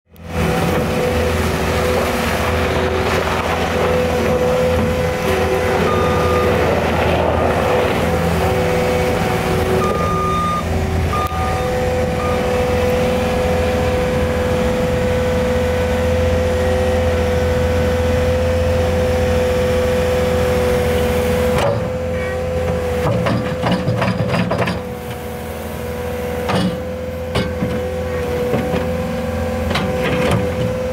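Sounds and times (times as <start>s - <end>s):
diesel engine running under load: 0.1s - 30.9s
hydraulic whine: 0.2s - 23.2s
short beeps: 5.9s - 6.6s, 9.8s - 12.6s.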